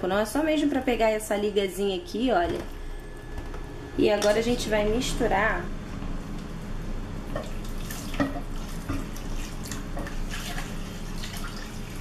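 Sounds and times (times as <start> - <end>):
spatula stirring and scraping: 7.3 - 11.3.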